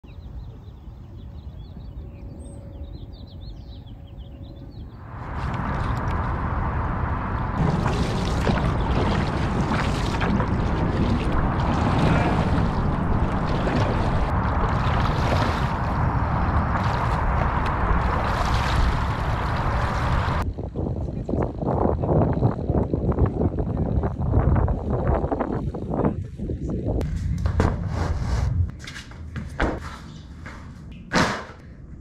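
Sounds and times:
paddle stroke splashes: 0:07.6 - 0:20.4
water rushing along canoe hull: 0:07.6 - 0:20.4.

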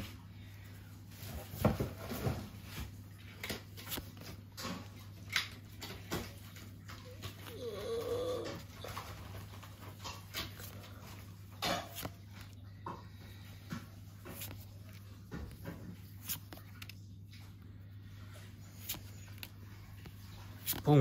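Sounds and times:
trading cards flipping: 0:03.6 - 0:04.4, 0:11.9 - 0:12.6, 0:14.0 - 0:17.2, 0:18.6 - 0:20.9
pet whining: 0:06.8 - 0:10.1.

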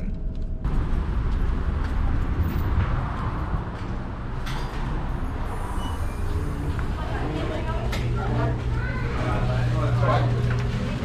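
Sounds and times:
traffic: 0:00.5 - 0:11.0
wind rumble on microphone: 0:00.6 - 0:07.0.

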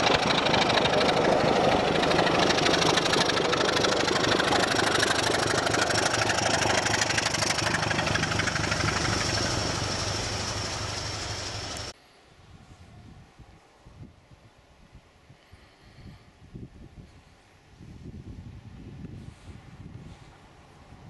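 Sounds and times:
diesel locomotive engine running: 0:00.0 - 0:12.0.

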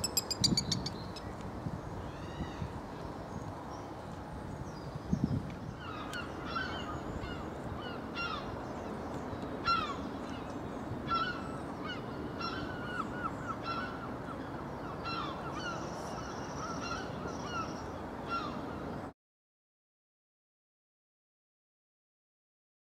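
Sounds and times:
steady background hiss: 0:05.7 - 0:19.1.

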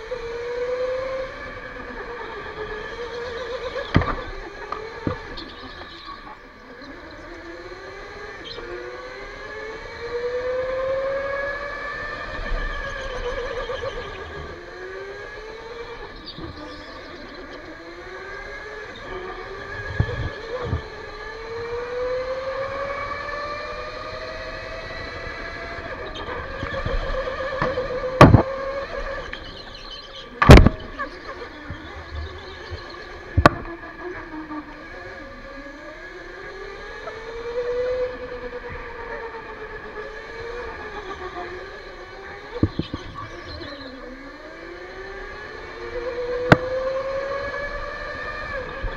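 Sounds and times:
electric go-kart motor whining: 0:00.0 - 0:48.9.

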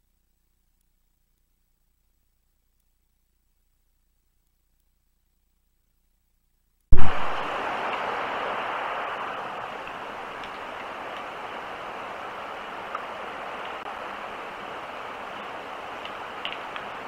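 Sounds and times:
audio switch pop: 0:06.9 - 0:07.4
light rain on wet ground: 0:06.9 - 0:17.0
faint dripping ticks: 0:12.8 - 0:13.9, 0:15.3 - 0:17.0.

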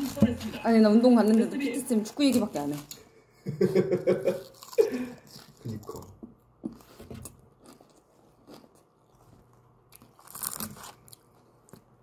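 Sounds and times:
chewing crunchy salad leaves: 0:04.2 - 0:12.0.

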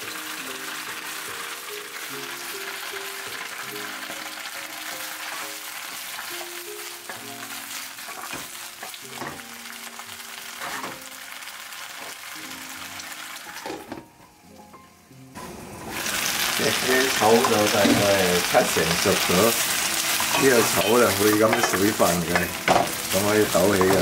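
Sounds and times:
soft piano music: 0:00.0 - 0:24.0
vegetables sizzling in oil: 0:00.0 - 0:24.0.

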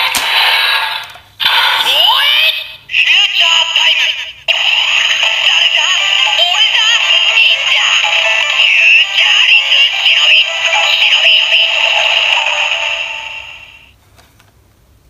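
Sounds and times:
synthesized chanting voice: 0:04.5 - 0:13.8
tinny electronic toy song: 0:04.5 - 0:13.9.

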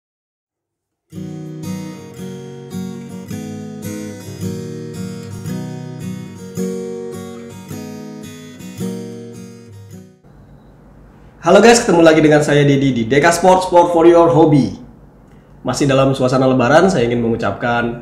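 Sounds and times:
strummed acoustic guitar: 0:01.1 - 0:10.6.

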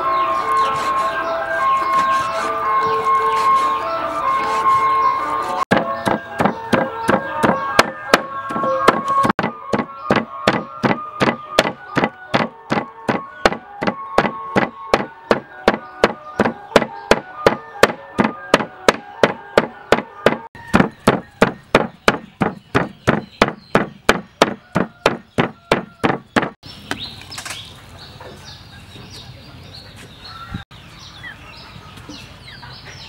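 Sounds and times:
cleaver chopping meat on wood: 0:05.7 - 0:26.6.

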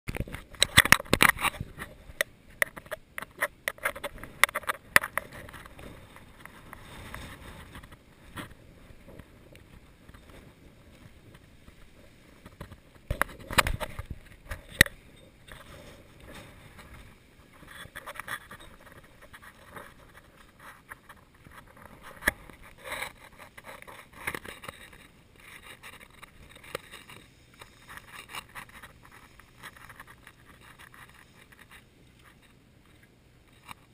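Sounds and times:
camera handling knocks and scrapes: 0:00.1 - 0:09.2, 0:12.4 - 0:14.9
rustling: 0:00.1 - 0:33.9.

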